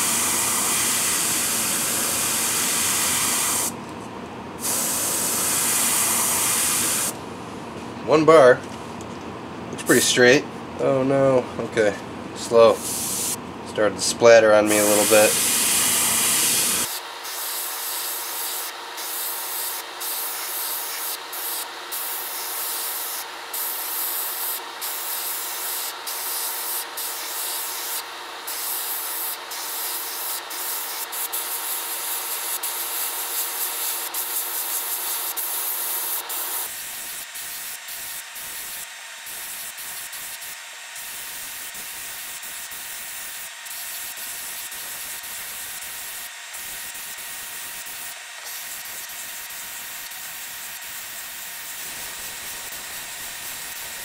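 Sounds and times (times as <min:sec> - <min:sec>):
airbrush spraying hiss: 0:00.0 - 0:03.7, 0:04.6 - 0:07.2, 0:12.8 - 0:13.4, 0:14.7 - 0:42.6, 0:48.5 - 0:54.0.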